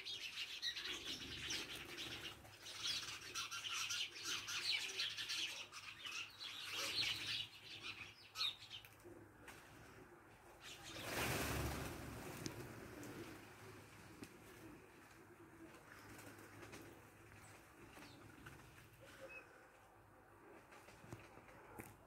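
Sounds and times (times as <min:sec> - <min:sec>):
small birds chirping: 0:00.0 - 0:09.0.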